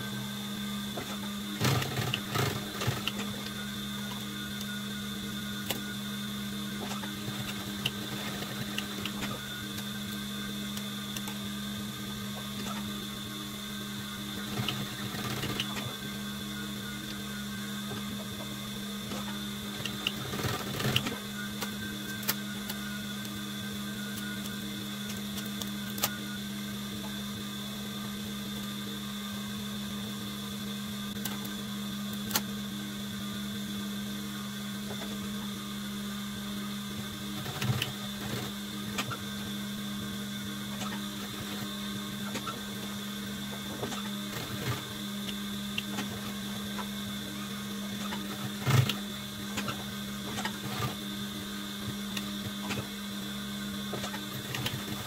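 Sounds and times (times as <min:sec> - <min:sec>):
sewing machine motor hum: 0:00.0 - 0:55.0.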